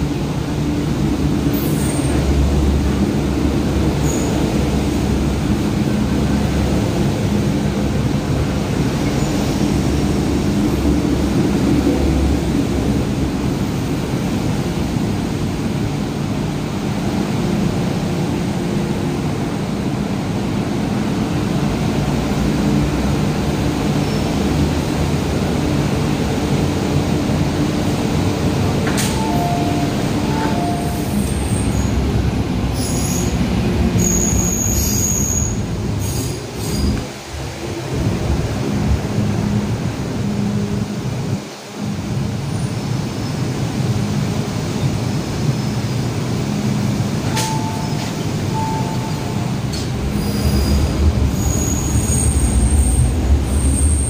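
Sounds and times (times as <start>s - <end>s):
train rumbling: 0.0s - 54.0s
high-pitched wheel squeals: 34.0s - 37.0s, 50.2s - 53.0s.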